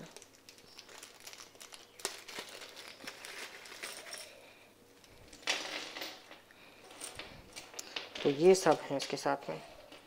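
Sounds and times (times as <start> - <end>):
plastic bag crinkling: 0.0 - 6.4.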